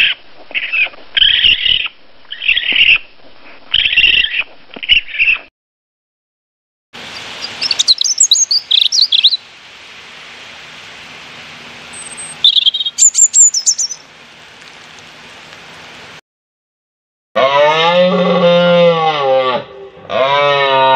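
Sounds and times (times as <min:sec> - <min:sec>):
steady hiss: 0:07.0 - 0:16.2
robin singing: 0:07.1 - 0:09.4, 0:11.9 - 0:14.1.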